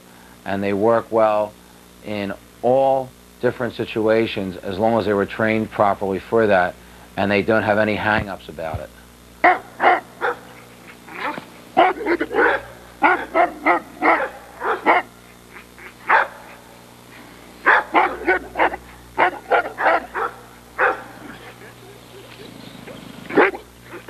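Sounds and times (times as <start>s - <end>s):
dog barking: 9.4s - 16.6s, 17.6s - 24.0s.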